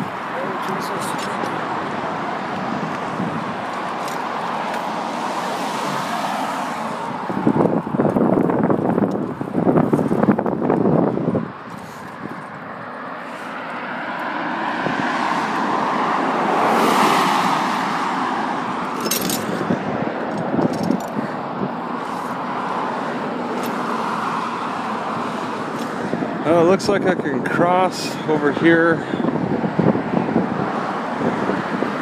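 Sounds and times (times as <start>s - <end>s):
vehicle passing close: 0.0s - 26.7s
steady traffic hum: 0.0s - 32.0s.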